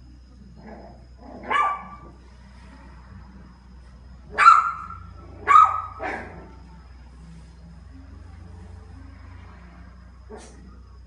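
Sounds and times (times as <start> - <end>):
puppy barking: 1.4 - 2.1, 4.3 - 6.5.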